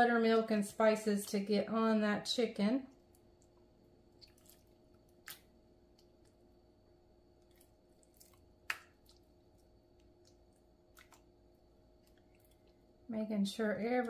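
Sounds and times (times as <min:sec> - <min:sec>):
faint steady hum: 0:00.0 - 0:14.0
wet squishes of chicken in marinade: 0:03.0 - 0:06.4, 0:07.4 - 0:12.9.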